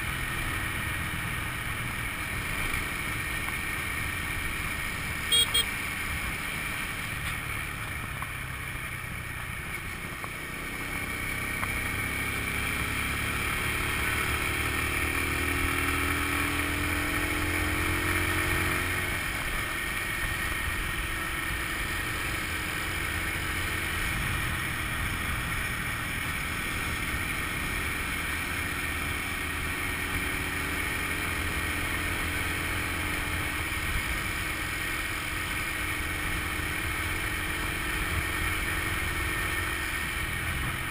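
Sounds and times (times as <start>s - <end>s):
scooter engine running: 0.1s - 14.2s.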